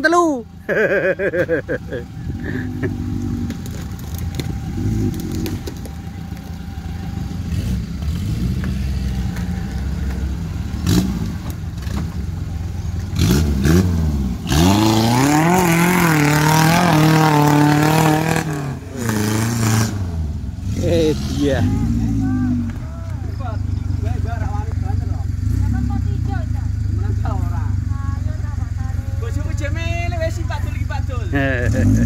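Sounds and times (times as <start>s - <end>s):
off-road vehicle engine revving: 0.0s - 32.0s
knocks and scrapes: 3.2s - 10.4s.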